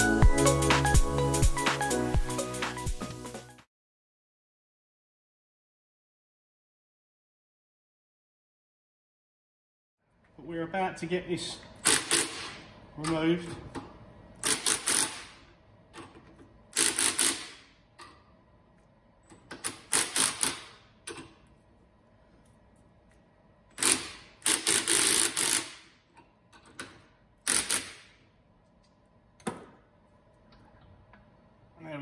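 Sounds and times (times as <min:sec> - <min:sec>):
impact wrench rattling: 0:11.8 - 0:12.6, 0:14.4 - 0:18.1, 0:19.3 - 0:21.4, 0:23.7 - 0:28.2.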